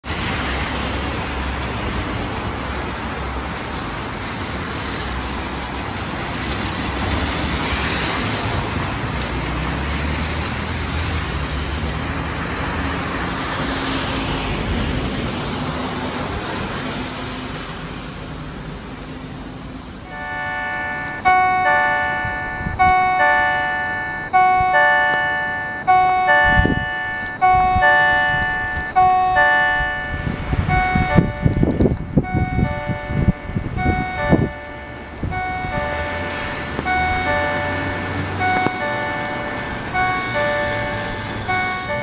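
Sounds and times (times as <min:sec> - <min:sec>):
wind rumbling on microphone: 0:25.9 - 0:42.0
rain hissing: 0:34.5 - 0:42.0.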